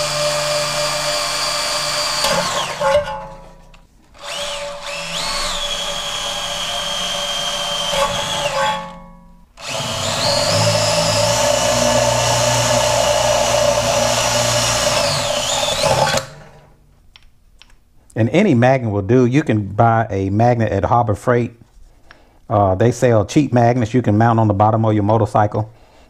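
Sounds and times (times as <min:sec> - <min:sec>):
cordless drill boring metal: 0:00.0 - 0:03.3, 0:04.2 - 0:16.7.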